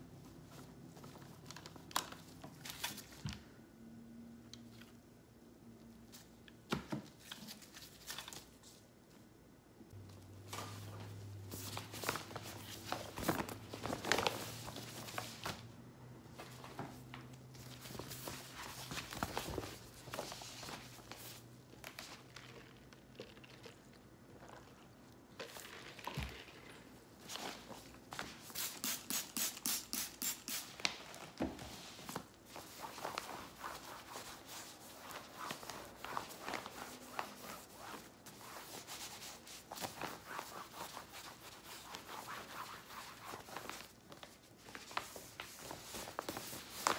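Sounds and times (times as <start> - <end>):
cloth rubbing strokes: 31.6 - 43.9.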